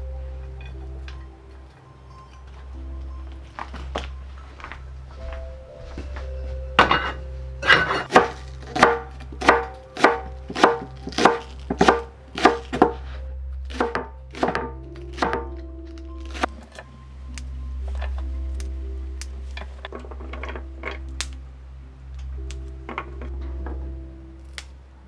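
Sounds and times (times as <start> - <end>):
knife chopping on wooden board: 8.1 - 13.0, 13.7 - 15.5.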